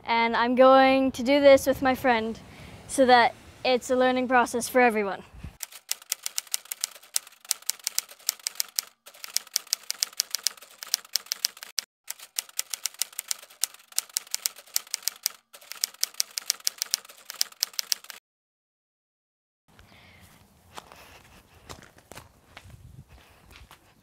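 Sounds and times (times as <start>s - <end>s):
typewriter key clicks: 5.6s - 18.2s.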